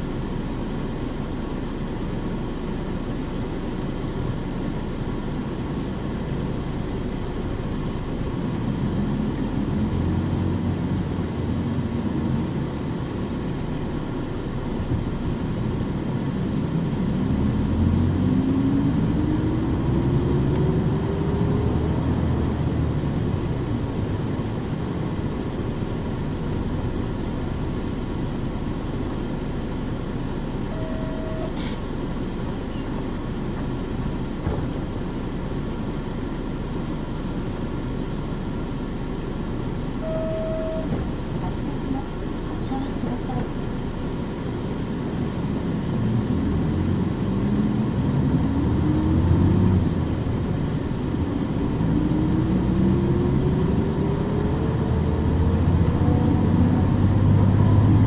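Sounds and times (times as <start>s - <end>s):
bus diesel engine rumbling: 0.0s - 58.0s
short beep: 30.7s - 31.8s, 40.0s - 41.0s
rising whine: 40.0s - 41.5s.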